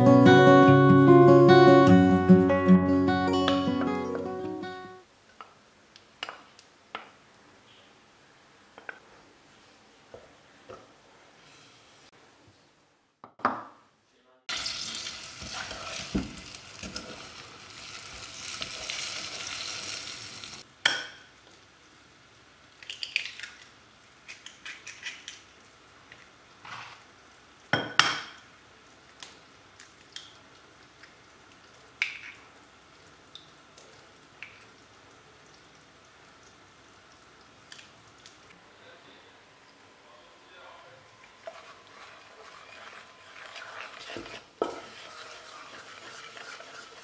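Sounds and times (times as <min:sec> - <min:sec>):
sizzling in a pot: 0:05.0 - 0:12.2, 0:14.5 - 0:47.0
wooden spoon stirring: 0:15.4 - 0:17.4, 0:41.2 - 0:47.0.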